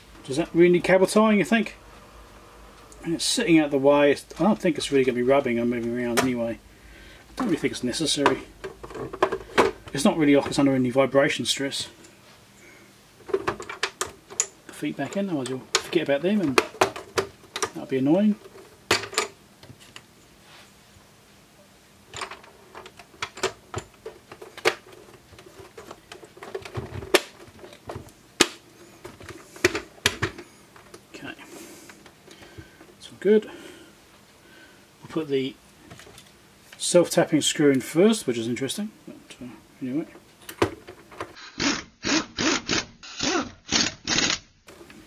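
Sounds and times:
electric screwdriver motor: 41.4s - 44.4s.

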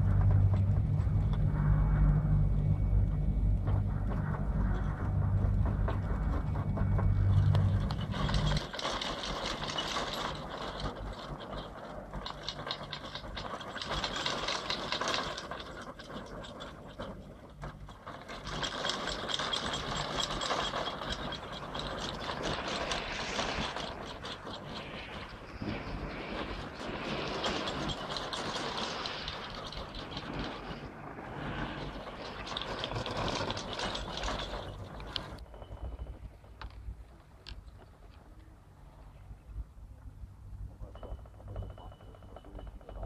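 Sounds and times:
chairlift rollers rattling: 0.0s - 1.3s, 3.8s - 38.1s
loud low rumble: 0.0s - 8.6s.

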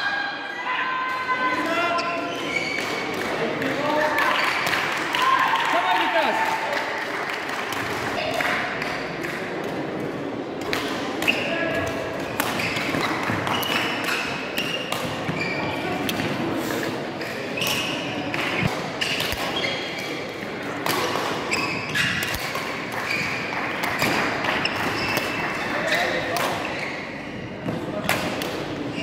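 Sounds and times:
shoes squeaking on court floor: 1.8s - 3.1s, 11.2s - 16.1s, 17.2s - 20.3s, 21.4s - 27.8s.

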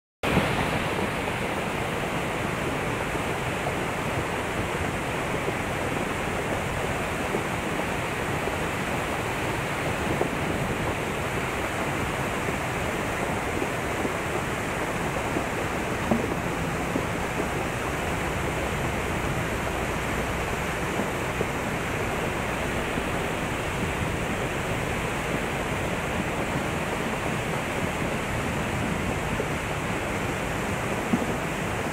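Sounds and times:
floodwater rushing: 0.2s - 31.9s.

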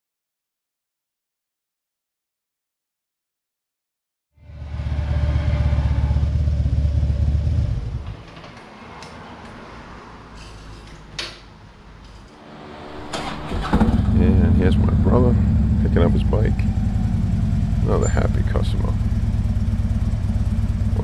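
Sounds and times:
motorcycle engine running: 4.4s - 8.1s, 12.9s - 21.0s.

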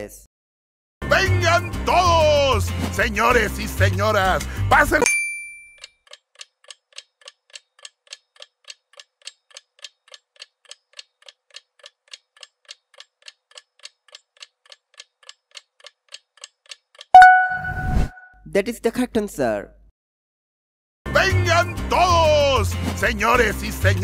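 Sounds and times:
clock-like ticking: 6.1s - 17.4s
high tone: 17.2s - 18.3s.

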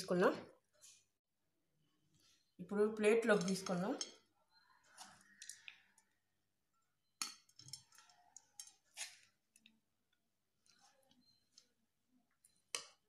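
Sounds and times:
spoon clinking and scraping dishware: 7.1s - 9.4s.

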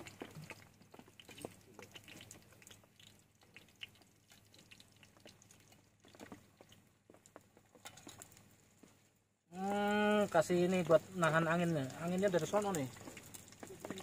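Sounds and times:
faint small clicks and ticks: 11.2s - 14.0s.

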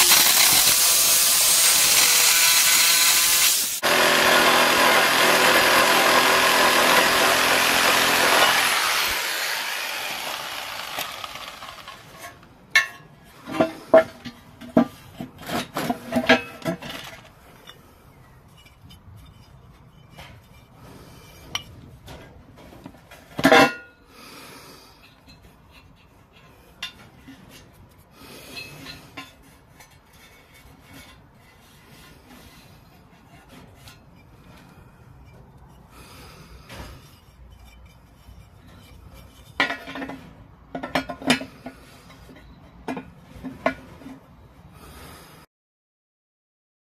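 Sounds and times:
power saw cutting: 0.0s - 12.3s
metal clanks and rattles: 36.6s - 44.3s.

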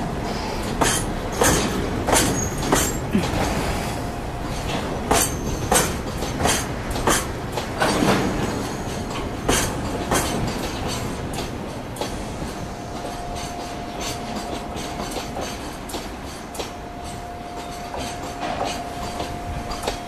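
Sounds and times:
freight train rumble: 0.0s - 20.0s
wheels clacking over rail joints: 0.0s - 20.0s
faint steady squeal: 2.3s - 2.8s, 16.3s - 20.0s.

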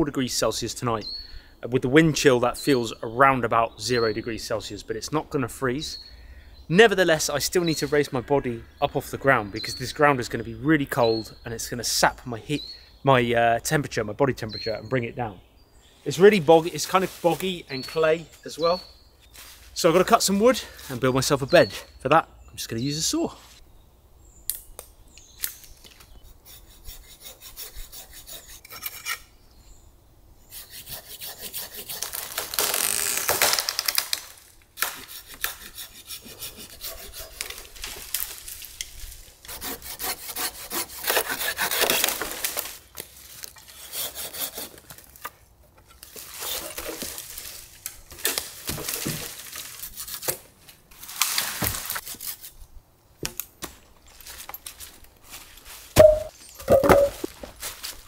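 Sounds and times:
hand saw cutting wood: 26.4s - 29.3s, 30.5s - 33.2s, 34.8s - 38.0s, 39.4s - 42.7s, 43.6s - 45.3s, 46.1s - 47.2s, 49.7s - 50.4s.

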